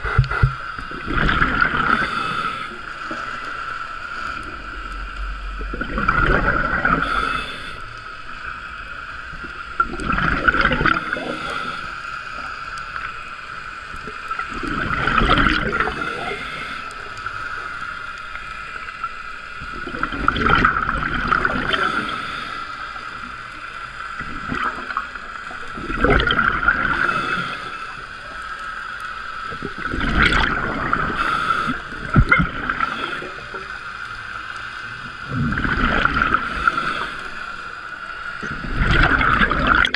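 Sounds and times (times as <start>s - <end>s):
diver exhaling bubbles: 5.6s - 7.8s, 9.8s - 11.9s, 14.6s - 16.8s, 35.3s - 37.3s, 38.4s - 39.9s.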